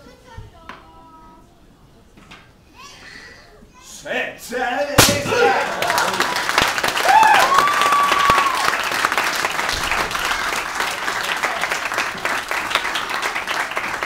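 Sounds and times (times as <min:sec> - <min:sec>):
crowd clapping: 0:05.3 - 0:14.0.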